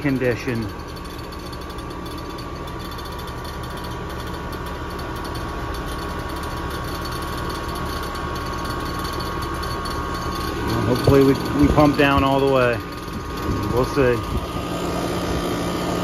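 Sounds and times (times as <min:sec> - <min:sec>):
heat pump unit running: 0:00.0 - 0:16.0.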